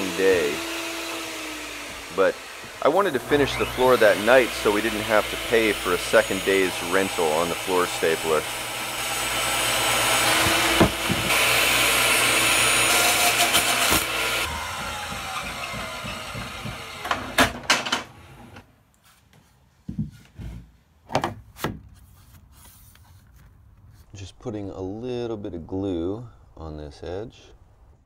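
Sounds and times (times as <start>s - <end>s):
saw blade spinning down whine: 0.0s - 17.1s
table saw ripping board: 0.0s - 18.6s
sharp knocks: 14.6s - 18.1s.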